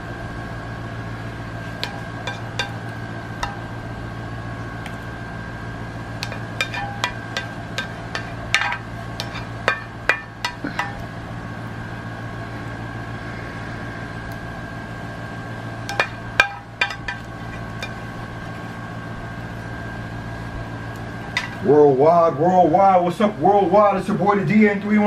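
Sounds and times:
appliance hum: 0.0s - 25.0s
metal kitchenware clinking: 1.8s - 3.7s, 6.2s - 11.0s, 15.9s - 18.0s.

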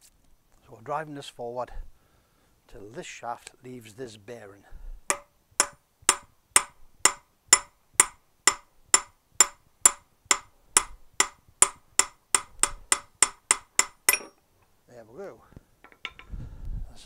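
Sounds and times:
hammer striking metal: 5.1s - 14.4s.

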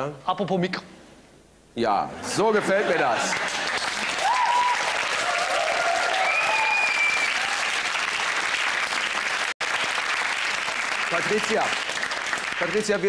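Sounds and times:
audience cheering: 2.7s - 9.4s
audience applauding: 2.9s - 13.0s.

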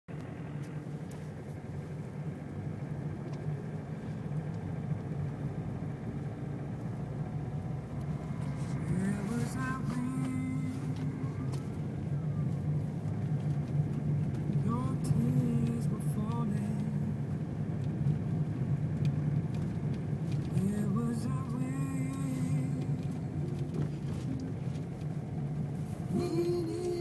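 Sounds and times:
car engine and tyre hum: 0.1s - 27.0s.

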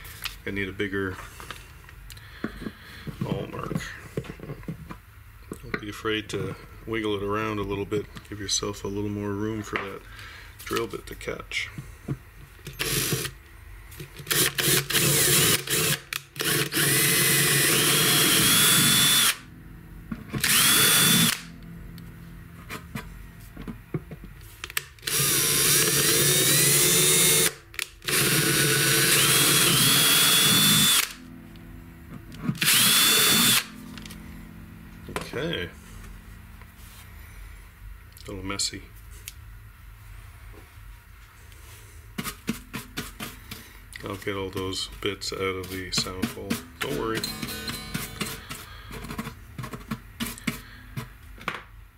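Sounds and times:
steady low hum: 0.0s - 51.9s
power drill boring into wood: 12.7s - 13.4s, 14.3s - 19.4s, 20.4s - 21.5s, 25.0s - 31.2s, 32.6s - 33.7s.

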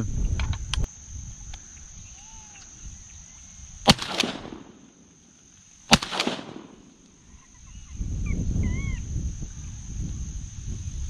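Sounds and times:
high buzz of marsh insects: 0.0s - 11.0s
shotgun shot: 3.9s - 5.2s, 5.9s - 7.0s.

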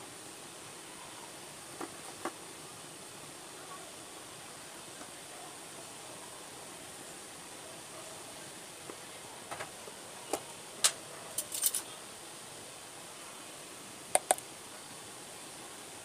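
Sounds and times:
faint steady hiss: 0.0s - 16.0s
kitchenware clinking: 11.4s - 11.9s.

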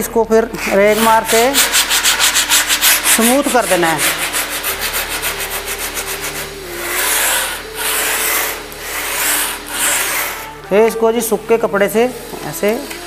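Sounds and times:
sandpaper rubbing edge: 0.6s - 10.6s.

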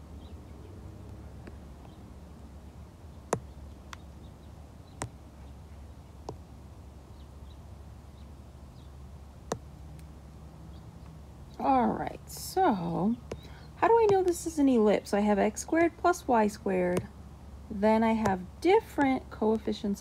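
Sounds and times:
low steady hum: 0.0s - 20.0s
stylus tapping glass screen: 13.2s - 14.4s.

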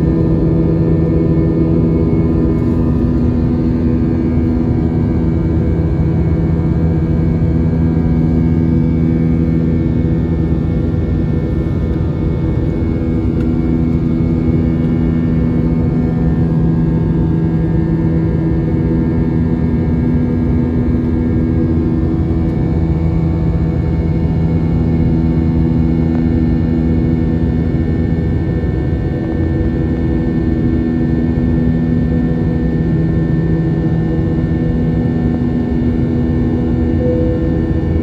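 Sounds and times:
airliner cabin drone: 0.0s - 38.0s
jet engine and airflow noise: 0.0s - 38.0s
low hum of fixed tones: 36.9s - 38.0s.

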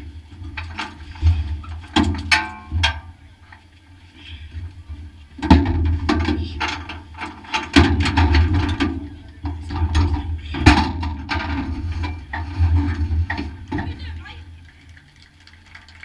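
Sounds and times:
sharp clicks and clatters: 13.3s - 16.0s.

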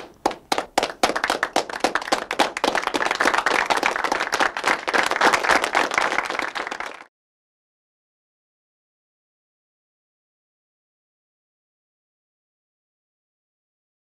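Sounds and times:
people clapping: 0.0s - 7.1s.

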